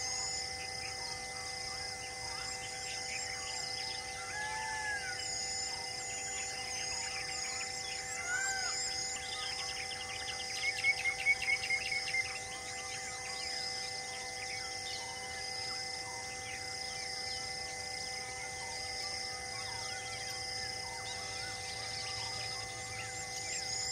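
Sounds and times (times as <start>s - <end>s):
high pulsing insect call: 0.0s - 23.9s
insects chirring: 0.0s - 23.9s
birds chirping and whistling: 2.3s - 15.7s, 19.4s - 23.9s.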